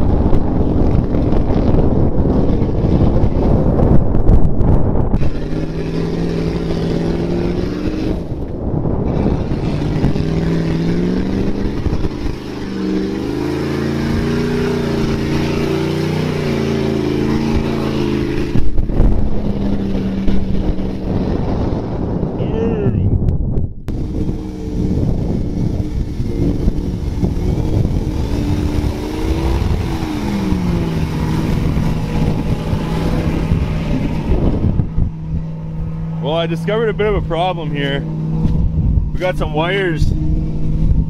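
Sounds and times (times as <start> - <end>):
truck engine revving: 0.0 - 22.4, 23.8 - 41.0
tires spinning through mud: 0.0 - 22.5, 23.9 - 41.0.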